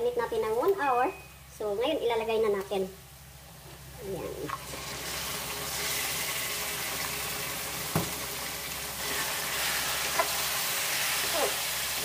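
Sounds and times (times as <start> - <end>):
meat sizzling in oil: 4.6 - 12.0.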